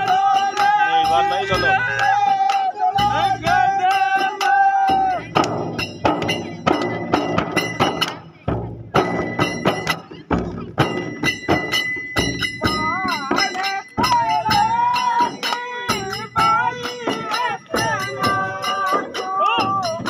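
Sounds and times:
frame drums beaten by hand: 0:00.0 - 0:20.0
wavering melody: 0:09.1 - 0:20.0.

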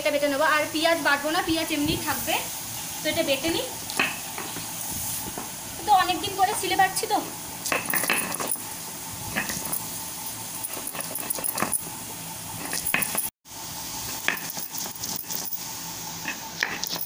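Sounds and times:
stone pestle grinding on stone: 0:09.3 - 0:09.8, 0:10.6 - 0:11.9, 0:12.6 - 0:13.3, 0:14.2 - 0:15.6, 0:16.2 - 0:17.0.

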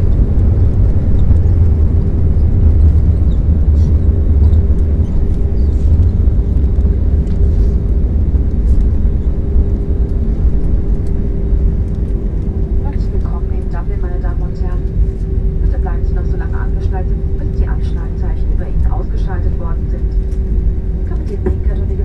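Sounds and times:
aircraft wheels on runway: 0:00.0 - 0:15.6
jet engines running: 0:00.0 - 0:22.0
steady cabin hum: 0:00.0 - 0:22.0.

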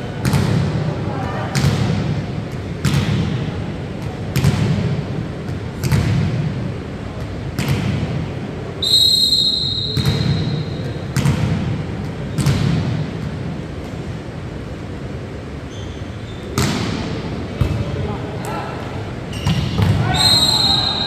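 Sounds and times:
referee's whistle: 0:08.8 - 0:10.9, 0:19.4 - 0:21.0.

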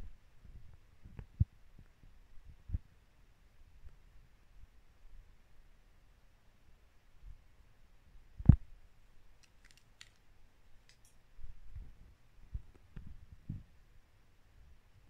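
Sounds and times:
faint clicks: 0:09.4 - 0:11.2.

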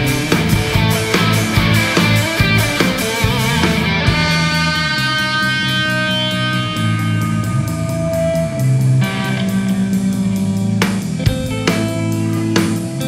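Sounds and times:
drum hits: 0:00.0 - 0:05.0
electric guitar ringing notes: 0:00.0 - 0:13.0.

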